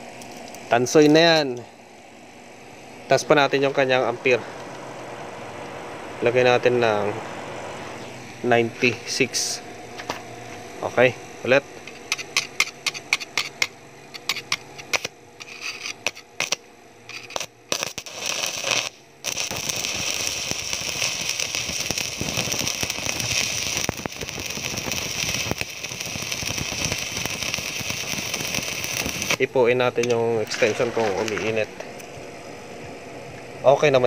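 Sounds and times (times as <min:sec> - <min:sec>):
welding arc crackling: 0:12.0 - 0:32.2.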